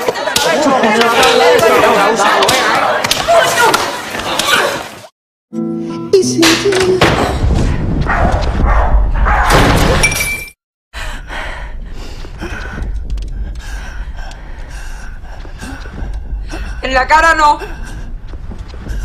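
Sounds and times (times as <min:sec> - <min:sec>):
glass breaking and shattering: 0:09.5 - 0:10.6.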